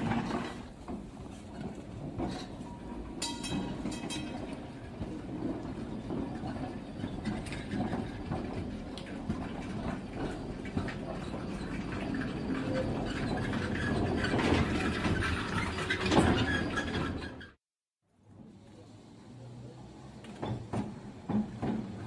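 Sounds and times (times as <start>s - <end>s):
model tram wheels clicking on rails: 0.0s - 17.6s, 18.4s - 22.0s.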